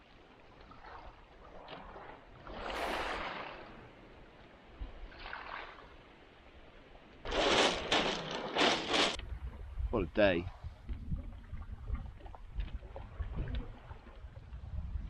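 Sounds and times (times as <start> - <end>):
small waves on pebble shore: 0.7 - 9.2.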